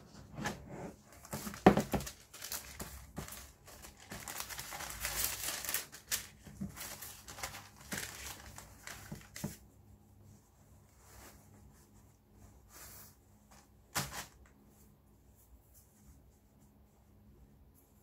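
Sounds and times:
tissue paper rustling: 1.1s - 9.6s, 10.3s - 14.8s.

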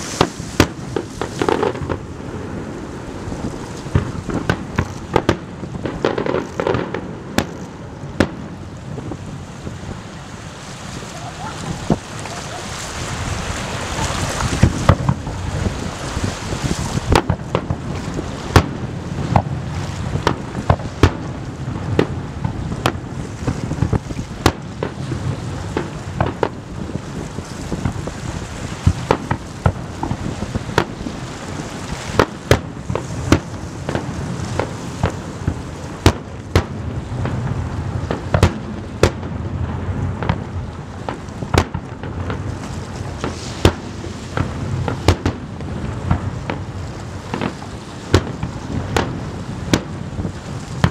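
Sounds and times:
fireworks bursting with sharp bangs: 0.0s - 50.9s
low rumble and hiss: 0.0s - 50.9s.

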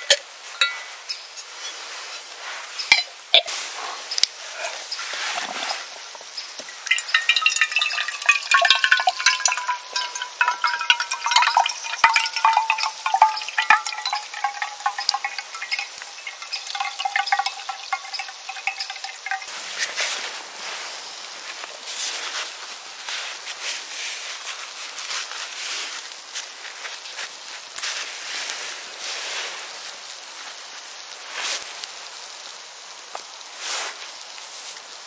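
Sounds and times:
metal cookware ringing tone: 0.6s - 1.0s, 6.7s - 19.5s.

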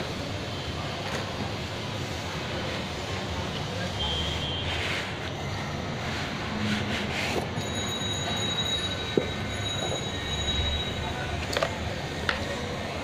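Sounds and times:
steady background noise: 0.0s - 13.0s
dartboard scraping on cardboard: 6.0s - 7.6s.

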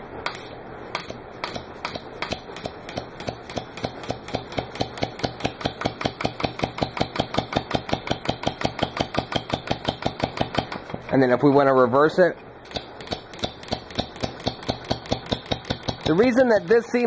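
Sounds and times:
air-powered engine clicking and puffing: 12.6s - 17.0s.

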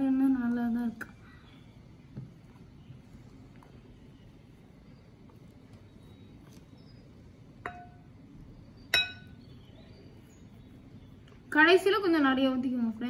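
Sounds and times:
spoon clinking on glass bowl: 7.6s - 8.0s, 8.9s - 9.4s.

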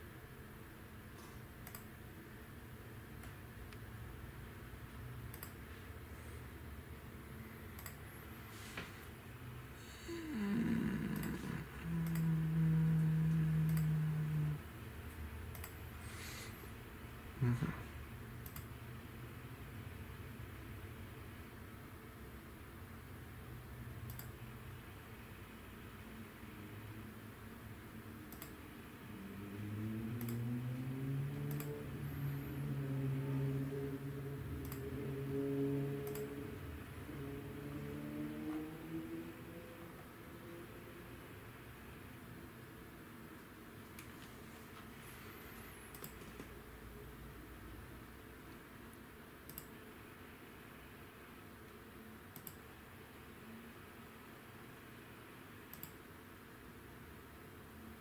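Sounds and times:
low hum: 0.4s - 20.2s, 25.4s - 55.9s
computer mouse clicking: 1.1s - 2.0s, 3.1s - 3.9s, 5.2s - 5.7s, 7.7s - 8.0s, 10.4s - 12.6s, 13.3s - 14.3s, 15.4s - 15.9s, 18.4s - 18.8s, 24.0s - 24.4s, 28.3s - 28.6s, 30.1s - 30.6s, 31.2s - 32.0s, 34.5s - 35.0s, 36.0s - 36.4s, 45.8s - 46.6s, 48.9s - 49.8s, 51.7s - 52.8s, 55.7s - 56.1s
person humming: 9.8s - 14.8s, 17.4s - 18.0s.

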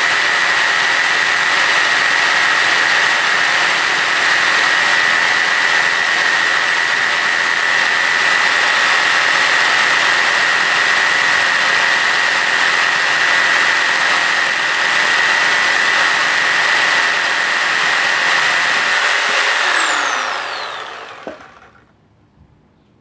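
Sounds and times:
reciprocating saw cutting wood: 0.0s - 21.8s
saw motor winding down: 0.0s - 21.9s.

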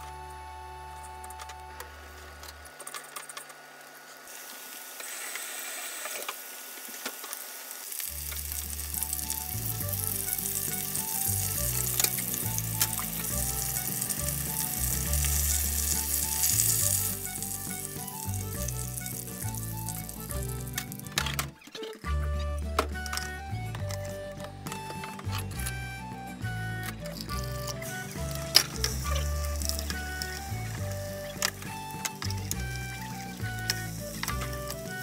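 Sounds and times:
chicken deep-frying in oil: 3.6s - 21.0s, 27.7s - 35.0s.

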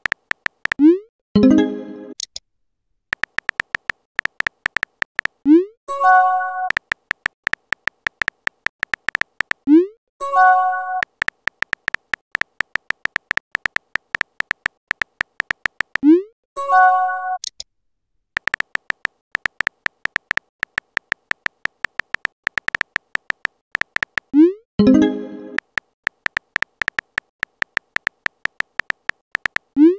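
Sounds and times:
keyboard tap clicks: 0.0s - 0.8s, 3.1s - 5.4s, 6.7s - 9.6s, 11.0s - 16.0s, 18.4s - 24.3s, 25.6s - 29.8s.

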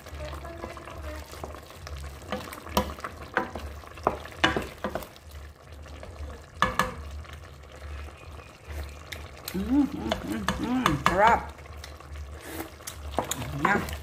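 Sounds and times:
low sizzle: 0.0s - 14.0s
wooden spatula scraping metal pot: 12.2s - 14.0s.

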